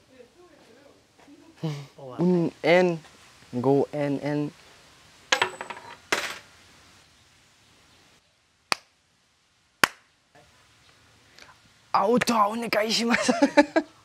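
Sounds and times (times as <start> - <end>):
coins clinking into wooden box: 5.3 - 6.5
sharp cracks: 8.7 - 9.0, 9.8 - 10.1.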